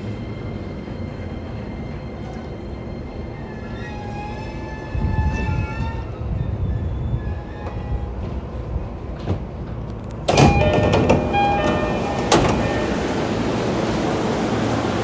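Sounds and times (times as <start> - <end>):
train door rushing open: 3.4 - 15.0.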